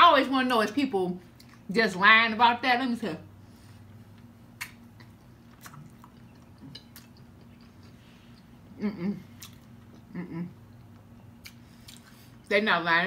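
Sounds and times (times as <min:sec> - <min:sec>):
soft chewing: 0:01.3 - 0:01.7, 0:03.6 - 0:12.5
wet mouth clicks: 0:04.6 - 0:08.5, 0:09.3 - 0:10.1, 0:10.8 - 0:12.2
person humming: 0:08.8 - 0:09.3, 0:10.1 - 0:10.6.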